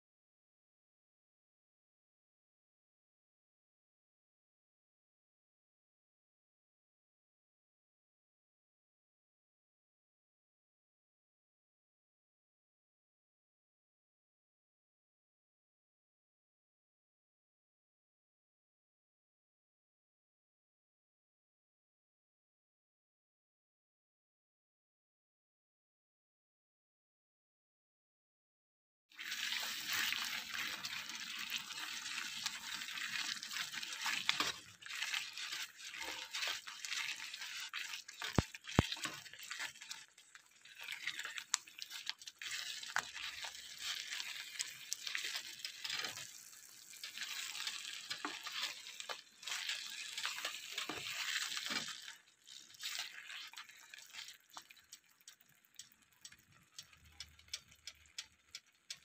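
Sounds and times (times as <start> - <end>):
spatula stirring wet paste in pan: 29.2 - 59.0.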